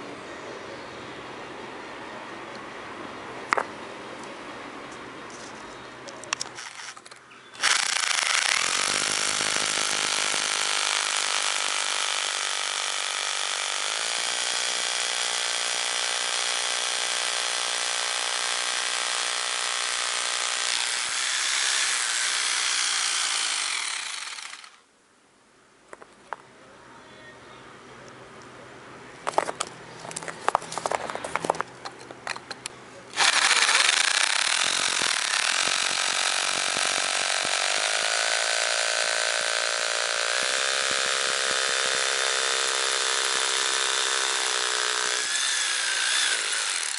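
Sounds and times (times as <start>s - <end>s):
rotary hammer drilling into stone: 6.4s - 24.8s, 33.1s - 46.9s.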